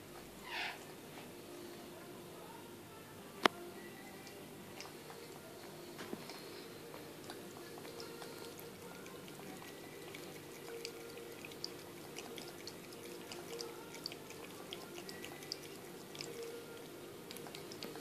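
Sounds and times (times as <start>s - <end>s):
cat lapping water: 3.8s - 18.0s
low fountain hum: 3.9s - 18.0s.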